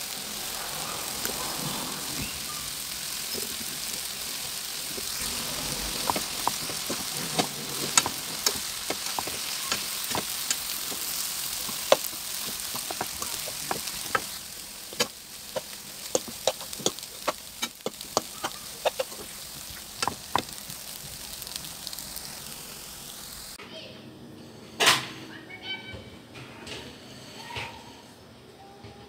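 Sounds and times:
food sizzling in a pan: 0:00.0 - 0:23.6
spatula tapping and scraping pan: 0:05.5 - 0:20.6.

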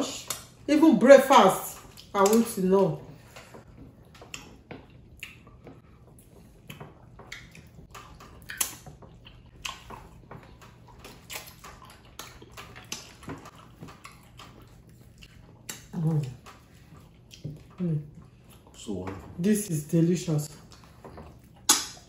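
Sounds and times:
wet chewing and slurping: 0:01.8 - 0:02.4, 0:03.1 - 0:19.4, 0:20.4 - 0:22.0.

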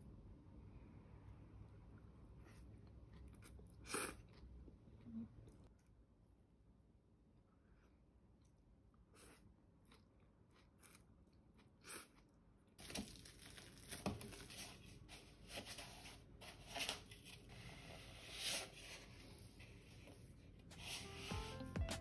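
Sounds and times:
plastic bag crinkling: 0:12.8 - 0:14.6.

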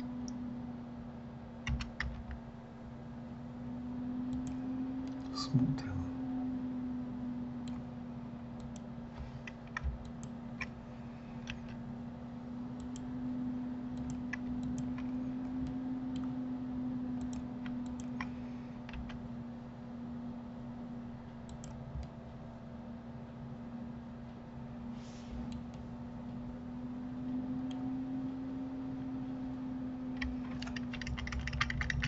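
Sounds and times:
steady low hum: 0:00.0 - 0:32.0
mouse and keyboard clicks: 0:01.7 - 0:02.4, 0:08.6 - 0:10.8, 0:11.4 - 0:11.8, 0:14.0 - 0:15.2, 0:17.2 - 0:19.2, 0:30.2 - 0:32.0.

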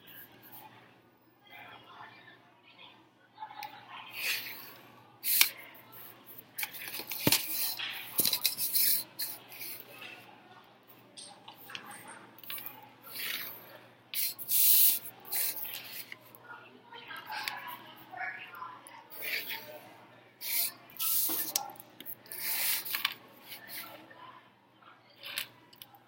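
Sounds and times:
pencil scratching on paper: 0:06.7 - 0:09.8, 0:14.2 - 0:16.2, 0:20.4 - 0:21.6, 0:22.2 - 0:24.0.

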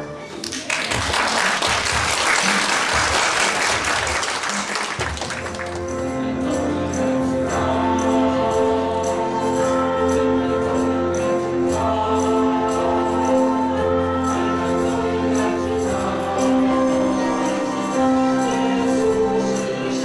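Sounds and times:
audience applauding: 0:00.2 - 0:05.9.

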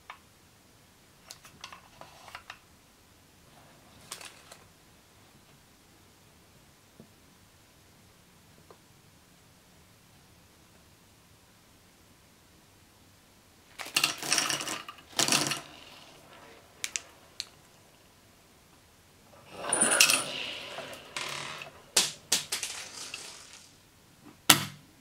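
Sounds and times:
candy balls clattering on a table: 0:13.8 - 0:17.7, 0:19.4 - 0:23.8.

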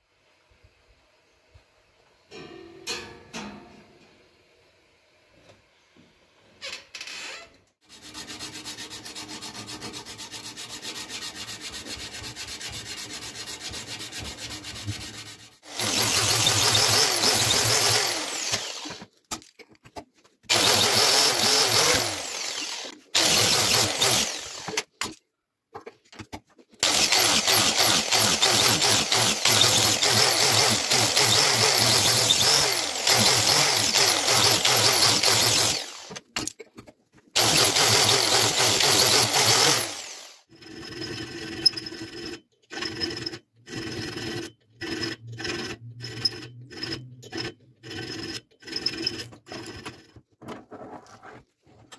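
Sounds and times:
sanding disc grinding metal blade: 0:07.9 - 0:19.0, 0:20.5 - 0:24.8, 0:26.9 - 0:36.2, 0:37.4 - 0:50.2.

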